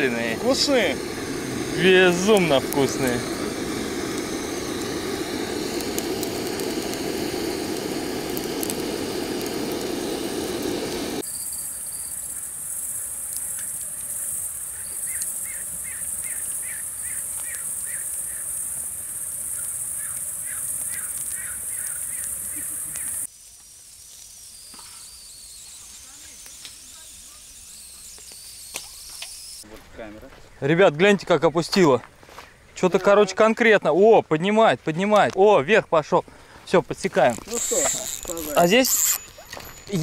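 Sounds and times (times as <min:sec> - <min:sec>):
crickets chorus: 0:00.0 - 0:09.8, 0:10.4 - 0:29.7, 0:37.2 - 0:40.0
gas torch flame rushing: 0:00.0 - 0:29.6.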